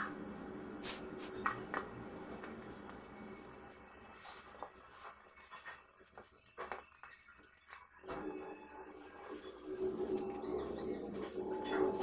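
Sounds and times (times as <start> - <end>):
steady low hum: 0.0 - 6.9.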